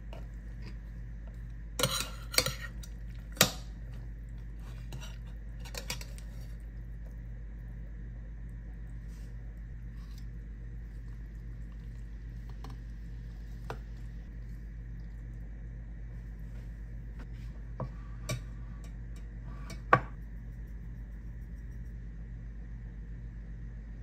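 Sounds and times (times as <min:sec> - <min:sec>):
steady low hum: 0:00.0 - 0:24.0
metal tongs and kitchenware clinking: 0:01.8 - 0:03.7, 0:04.9 - 0:06.3.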